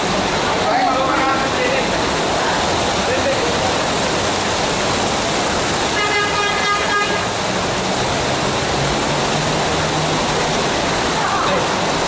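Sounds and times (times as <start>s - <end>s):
heavy rain pouring: 0.0s - 12.0s
bus horn: 5.9s - 7.4s.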